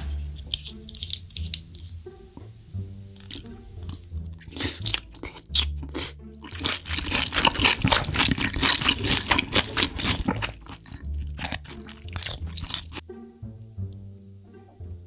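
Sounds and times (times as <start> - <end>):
sharp smacking clicks: 0.0 - 2.0
wet chewing and slurping: 0.0 - 2.0, 3.1 - 13.0.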